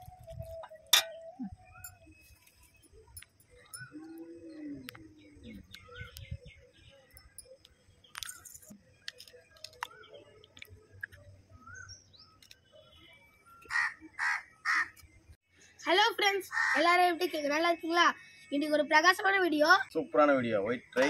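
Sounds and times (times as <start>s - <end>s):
small birds chirping: 0.3s - 21.0s
crows cawing: 13.7s - 15.0s, 16.5s - 16.9s.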